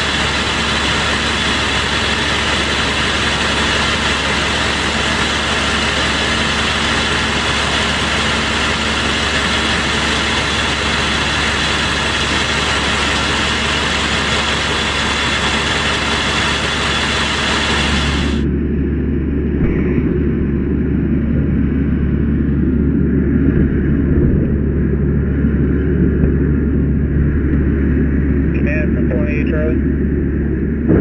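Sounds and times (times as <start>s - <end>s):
diesel engine droning: 0.0s - 31.0s.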